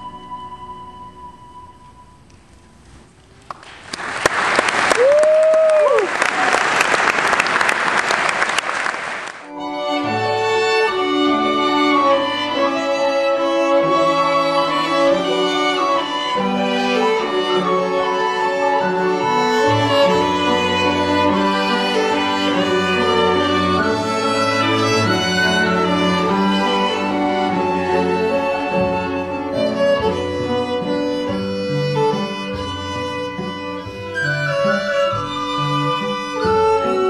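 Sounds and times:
audience applauding: 3.5 - 9.5
person cheering: 4.9 - 6.6
string music with violin and cello: 9.5 - 37.0.

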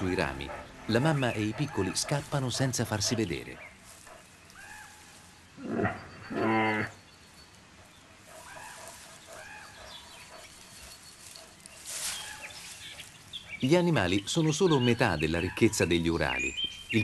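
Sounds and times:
small birds chirping: 0.0 - 17.0
bear grunting and moaning: 5.6 - 7.0.

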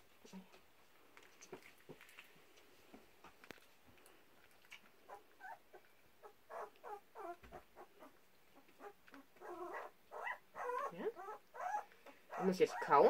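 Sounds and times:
puppy licking and smacking: 3.5 - 5.1
puppy squeaky noises: 6.5 - 8.1, 8.8 - 13.0.

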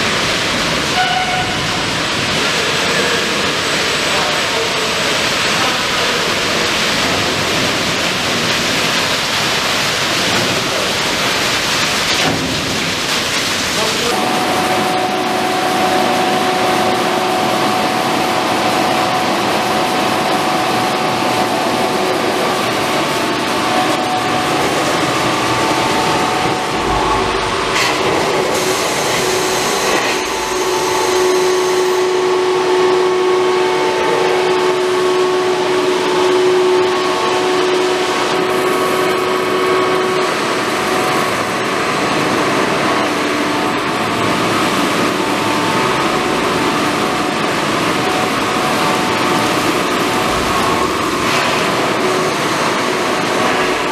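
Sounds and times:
pump machinery drone: 0.0 - 53.9
humming tones: 14.1 - 43.0.

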